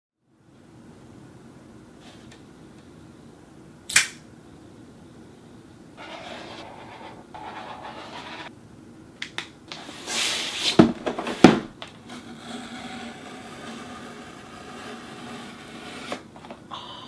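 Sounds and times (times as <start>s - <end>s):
cardboard sliding: 6.0s - 8.5s, 9.7s - 16.6s
marker scratching on cardboard: 6.0s - 8.5s.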